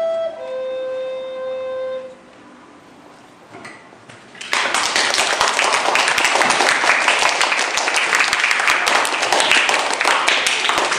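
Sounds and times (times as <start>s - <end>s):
children clapping: 4.4s - 10.9s.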